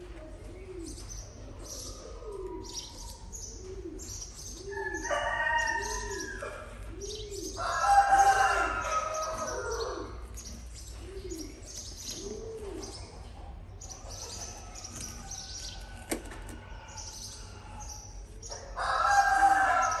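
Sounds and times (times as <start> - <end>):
small birds chirping: 0.4 - 16.0.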